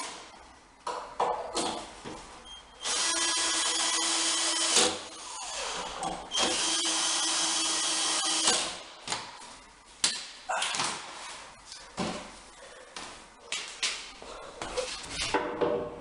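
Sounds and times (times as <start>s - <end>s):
drill driving screws into wood: 2.8s - 8.8s.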